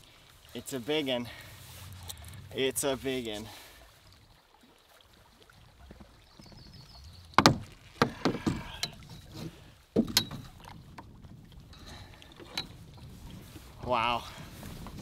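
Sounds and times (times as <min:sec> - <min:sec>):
wind and water hum: 0:00.0 - 0:15.0
stick knocking against canoe hull: 0:07.4 - 0:11.1.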